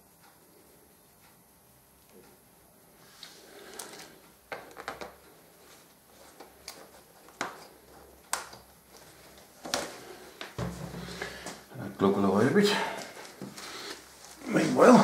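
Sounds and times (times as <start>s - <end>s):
objects knocking on workbench: 10.6s - 11.6s.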